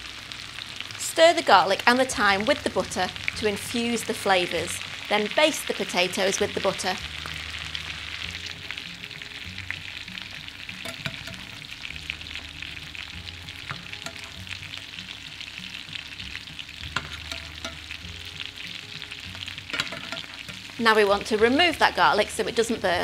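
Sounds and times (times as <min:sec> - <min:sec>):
butter sizzling in frying pan: 0:00.0 - 0:23.0
metal spoon scraping pan: 0:10.8 - 0:11.6, 0:13.7 - 0:14.4, 0:16.9 - 0:18.0, 0:19.7 - 0:20.8.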